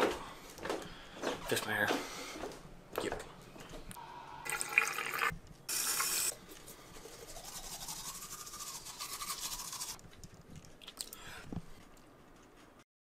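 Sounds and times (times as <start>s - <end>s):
tap water running: 4.5s - 6.3s
toothbrush scrubbing teeth: 6.5s - 10.0s.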